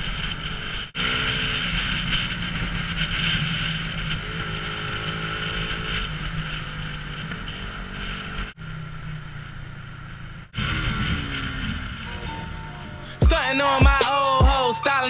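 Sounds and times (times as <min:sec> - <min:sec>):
motorcycle engine cruising: 0:00.0 - 0:15.0.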